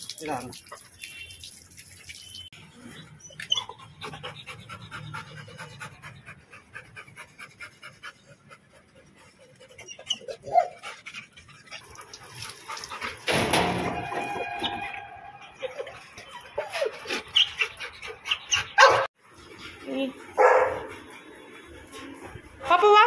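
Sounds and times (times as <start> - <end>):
dog panting rapidly: 3.6 - 13.2.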